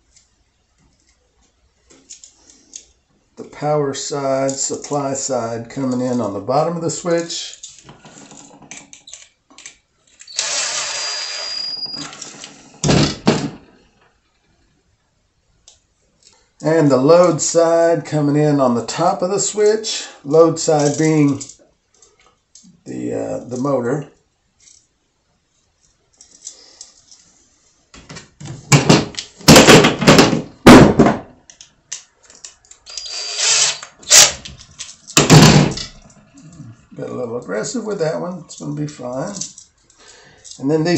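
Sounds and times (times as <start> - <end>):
cordless drill whining: 10.2 - 12.4, 32.9 - 34.4
loud knocks: 12.8 - 13.7, 28.7 - 31.3, 35.2 - 35.8.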